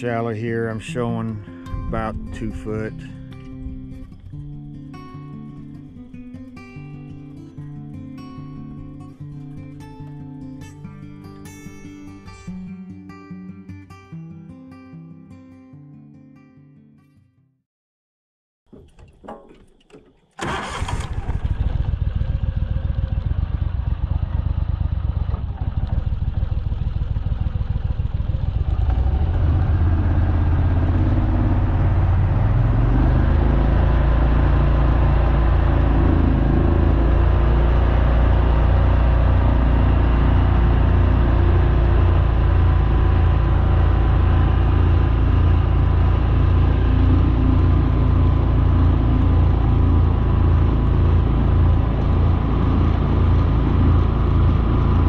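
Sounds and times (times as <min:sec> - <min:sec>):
boat motor running: 0:18.8 - 0:55.0.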